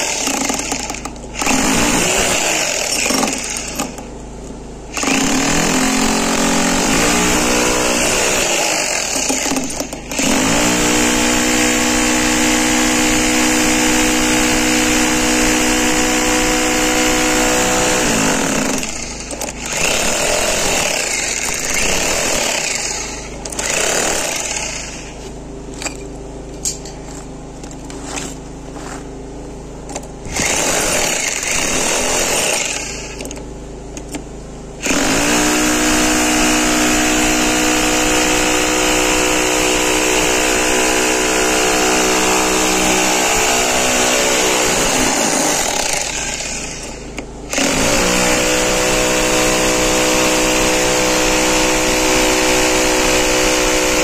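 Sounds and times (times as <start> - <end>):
demolition hammer breaking tiles: 0.0 - 4.0.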